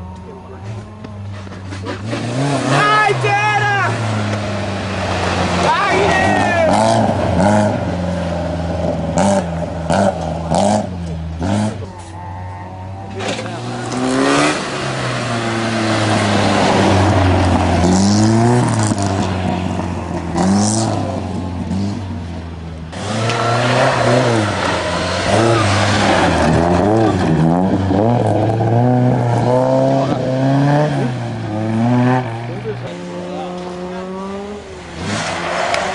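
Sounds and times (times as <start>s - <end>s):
rally car engines revving: 0.0s - 35.9s.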